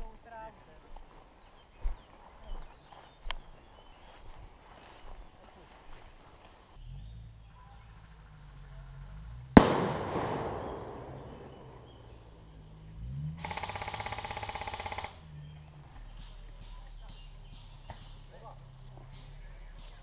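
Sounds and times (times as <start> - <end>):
pyrotechnic charge blast: 9.6 - 12.2
airsoft rifle full-auto burst: 13.4 - 15.2.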